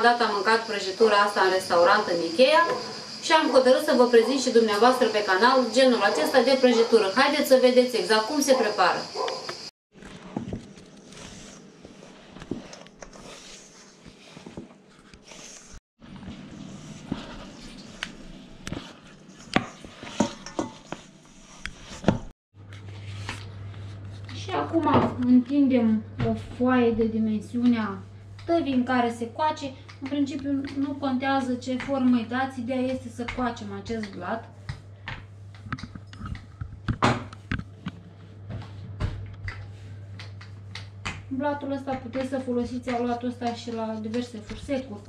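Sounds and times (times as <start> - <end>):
utensils and dishes clinking: 20.0 - 21.1
knocks of dough rolling: 40.2 - 45.0.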